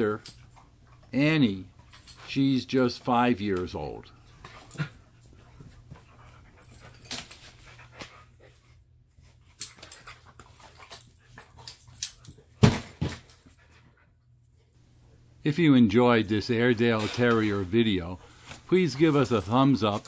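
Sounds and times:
dogs scuffling: 16.5 - 20.0.

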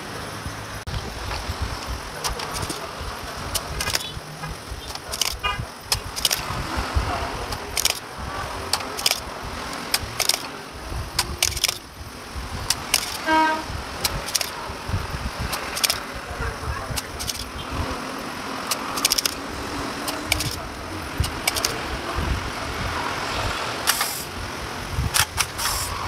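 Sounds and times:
low traffic rumble: 0.0 - 26.0
vehicle horn toots: 5.4 - 5.7, 13.2 - 13.8.

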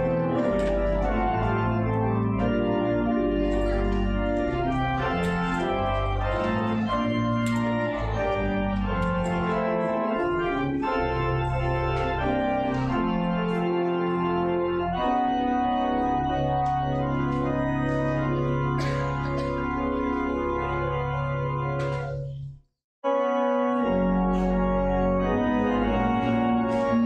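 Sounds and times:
church organ playing chords: 0.0 - 27.0.

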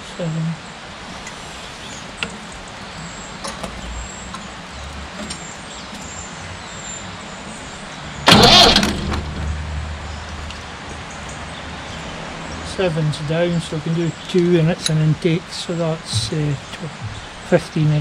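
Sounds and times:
diesel engine turning on starter: 8.2 - 11.6.

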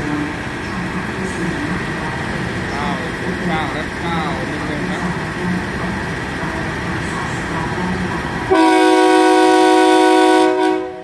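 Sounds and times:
diesel trains running: 0.0 - 11.0
train air horn blast: 8.5 - 11.0.

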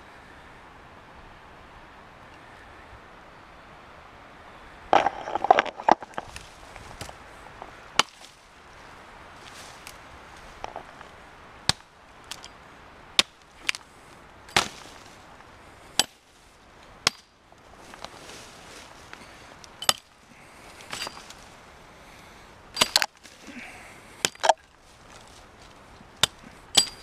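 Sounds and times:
hatchet chopping branch: 8.0 - 8.3, 11.6 - 12.5, 13.2 - 13.9, 14.5 - 15.0, 15.9 - 16.2, 17.0 - 17.3, 19.8 - 20.2, 22.8 - 23.4, 24.2 - 24.6, 26.2 - 27.0.

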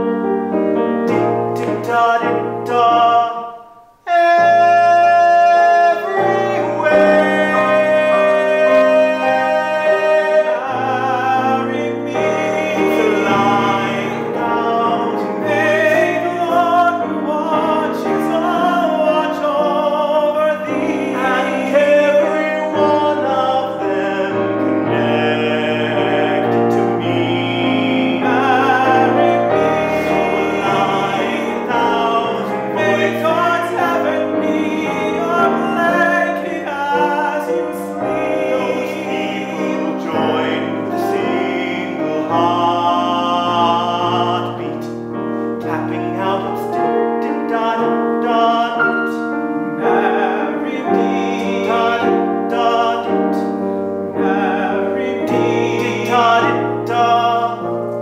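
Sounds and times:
grand piano: 0.0 - 58.0
men singing a duet: 1.1 - 58.0.

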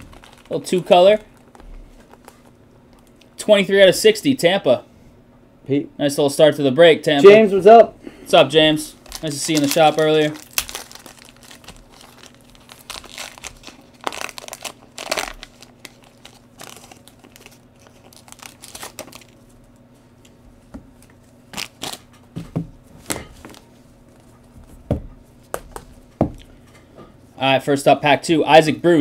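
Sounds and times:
foil wrapper crinkling and tearing: 0.0 - 3.2, 9.0 - 19.8, 21.5 - 22.1.

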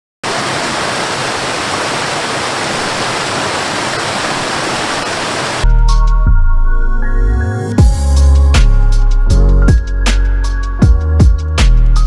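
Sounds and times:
waterfall rushing over rocks: 0.2 - 5.7
music with a beat: 7.8 - 12.0.

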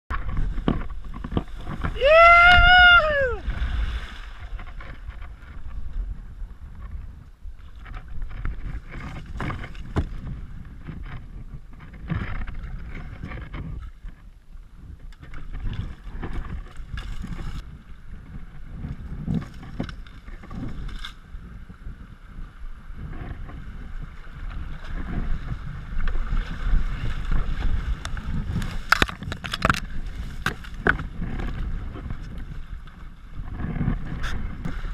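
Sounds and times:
loud rising and falling cry: 2.0 - 3.4.

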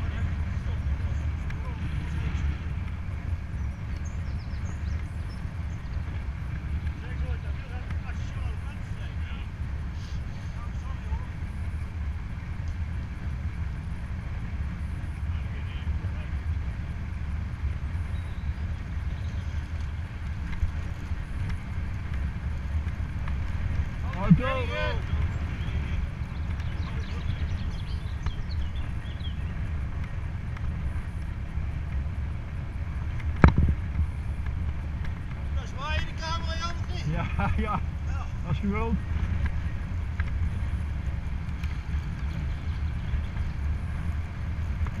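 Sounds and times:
wind buffeting microphone: 0.0 - 45.0
faint ticks: 3.9 - 4.2, 12.5 - 12.8, 18.7 - 24.4, 27.5 - 35.5, 39.4 - 45.0.

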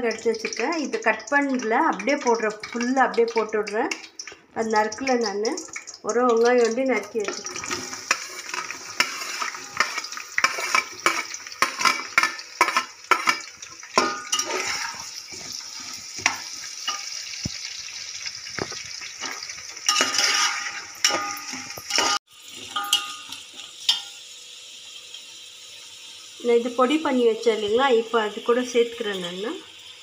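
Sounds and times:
shallots sizzling in hot oil: 0.0 - 30.0
metal ladle scraping pot: 7.2 - 17.2, 18.6 - 24.2.

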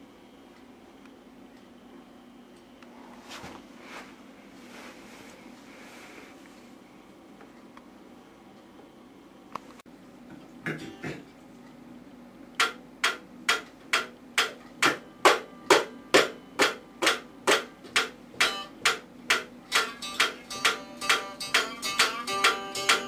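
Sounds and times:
metronome ticking: 12.6 - 14.6, 15.2 - 23.0.

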